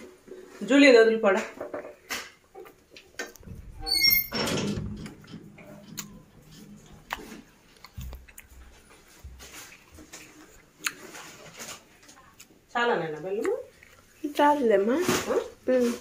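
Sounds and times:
rustling: 3.3 - 12.4, 13.8 - 16.0.

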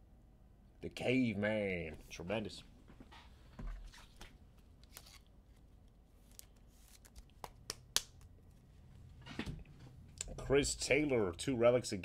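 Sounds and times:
light rustles of cards: 3.1 - 7.7.

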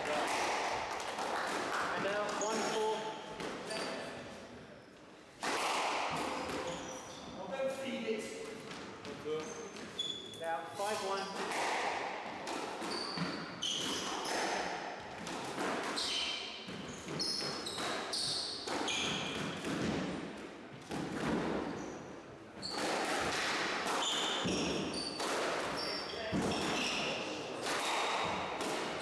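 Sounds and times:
shoes squeaking on wooden floor: 2.0 - 4.1, 6.4 - 7.5, 9.0 - 11.5, 12.8 - 14.6, 16.0 - 19.6, 22.6 - 22.9, 24.0 - 28.4
squash ball knocking on walls: 16.6 - 21.8.

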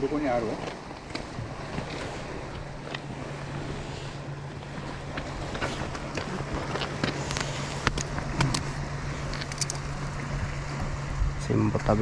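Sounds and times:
low engine hum: 0.0 - 12.0
wind noise on microphone: 9.5 - 12.0.

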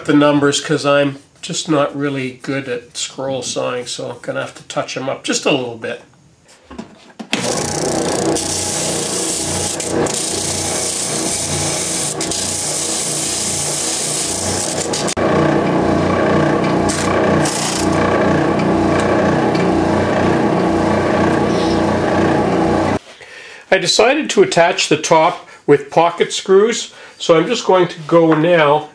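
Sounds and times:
sanding drum grinding plywood: 7.4 - 23.0
spindle sander motor hum: 7.4 - 23.0.

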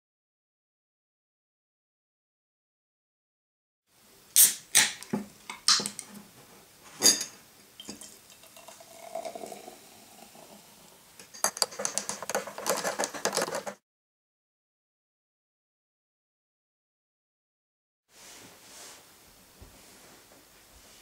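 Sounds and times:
can opening clicks and snaps: 4.4 - 6.1
cola fizzing into glass: 7.8 - 11.0.

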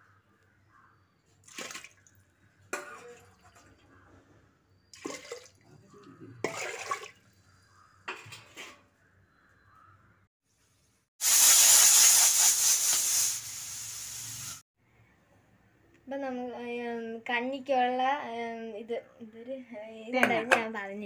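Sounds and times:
water sloshing in a pot: 1.4 - 4.0, 4.9 - 7.4.

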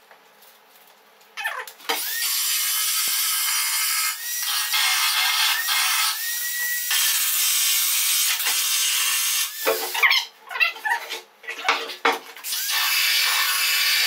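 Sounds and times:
power tool grinding metal: 1.9 - 10.0, 12.4 - 14.0
power tool motor whine: 1.9 - 10.0.

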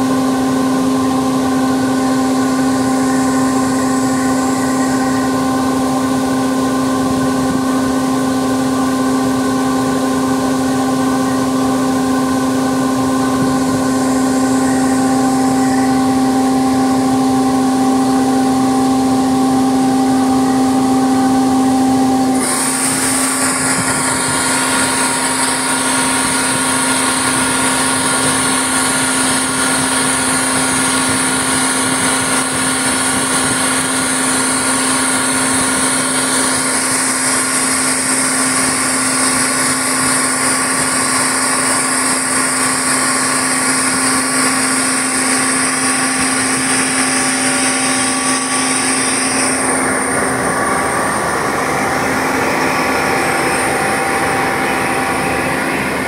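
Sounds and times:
loud high whir: 0.0 - 56.0
machinery low hum: 0.0 - 56.0.

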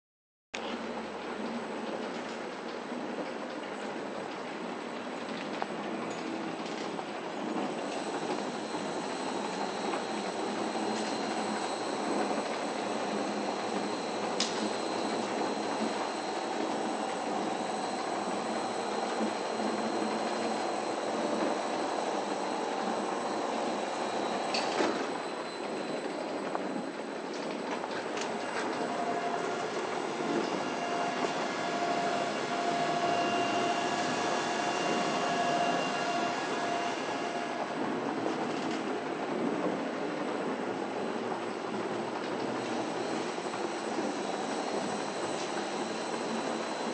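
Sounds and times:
steady machine whine: 0.6 - 46.9.

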